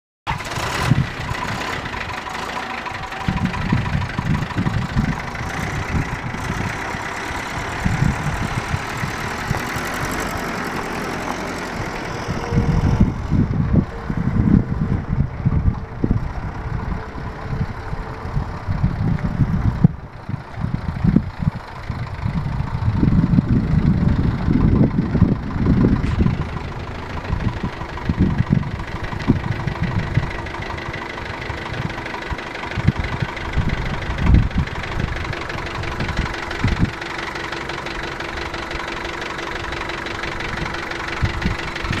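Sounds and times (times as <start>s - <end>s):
truck engine running: 0.3s - 42.0s.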